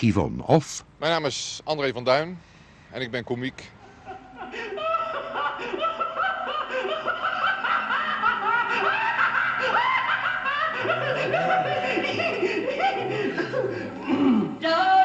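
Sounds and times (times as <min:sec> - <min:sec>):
audience laughing: 0:03.8 - 0:14.1.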